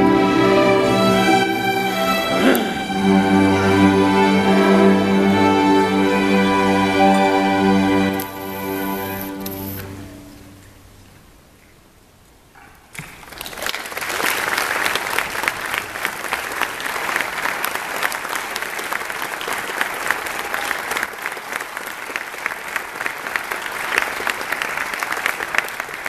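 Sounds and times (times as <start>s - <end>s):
audience applauding: 13.0s - 26.0s.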